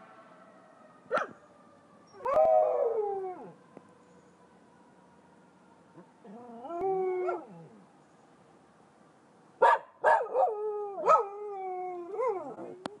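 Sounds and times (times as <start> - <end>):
siren: 0.0 - 8.8
dog howling: 6.3 - 7.8.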